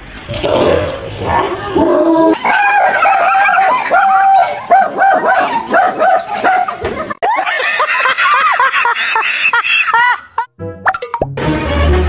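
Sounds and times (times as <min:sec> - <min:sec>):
dog barking and yipping: 0:02.4 - 0:06.9.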